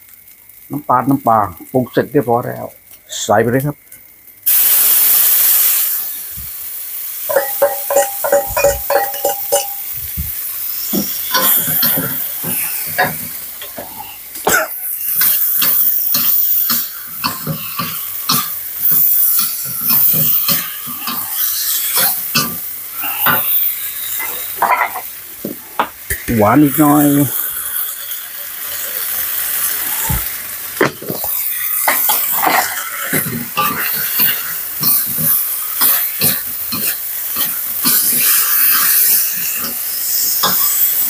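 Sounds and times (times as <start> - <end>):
food sizzling in hot oil: 0.0 - 41.0
metal spatula scraping wok: 7.3 - 9.9, 10.8 - 14.1, 14.7 - 25.1, 31.0 - 41.0
ringing metal clinks: 7.3 - 9.9.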